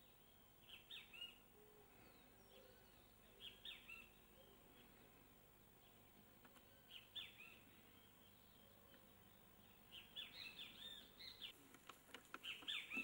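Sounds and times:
small bird chirping: 0.0 - 11.6, 12.3 - 13.0.

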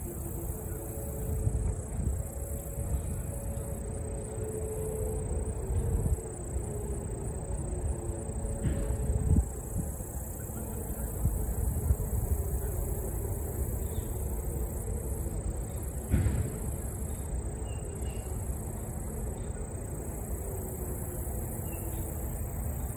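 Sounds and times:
crickets chirping: 0.0 - 22.9
brief knock: 16.1 - 16.6.

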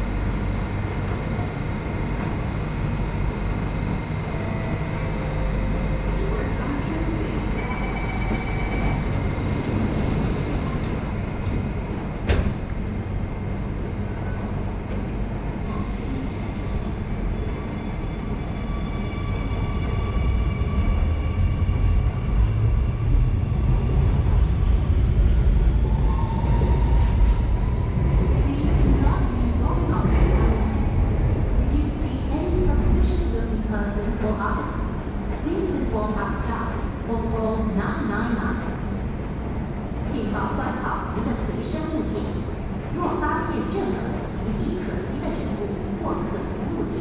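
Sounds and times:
train rumble: 0.0 - 47.0
steady warning tone: 3.2 - 9.8
train doors shutting: 7.4 - 12.9.

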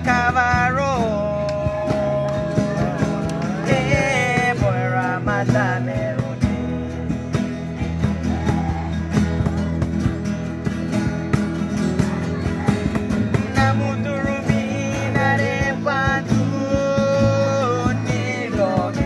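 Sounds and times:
young man singing: 0.0 - 7.3, 13.0 - 19.0
acoustic guitars strummed: 0.0 - 19.0.

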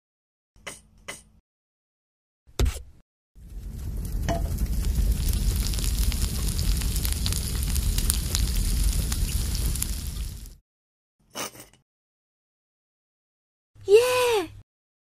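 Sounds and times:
liquid sizzling and crackling: 3.4 - 10.6.

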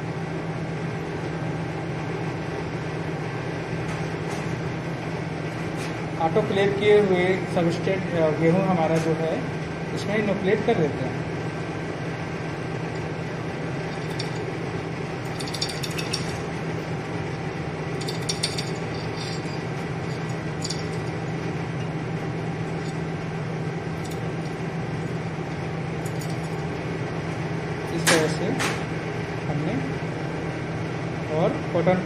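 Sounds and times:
fan hum: 0.0 - 32.0
grain rattling in glass bottle: 18.0 - 21.5.

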